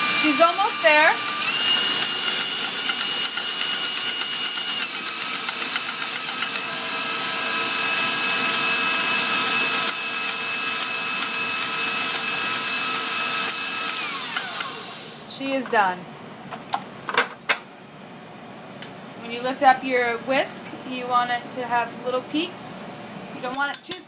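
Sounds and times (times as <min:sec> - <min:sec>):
whisk churning in steel bowl: 0:00.0 - 0:13.4
stand mixer motor whine: 0:00.0 - 0:15.3.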